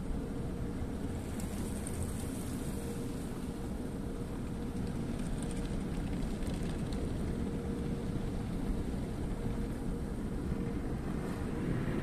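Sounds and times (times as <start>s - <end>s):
car wash machinery rumble: 0.0s - 12.0s
faint steady hum: 0.0s - 12.0s
light crackling ticks: 4.8s - 7.2s.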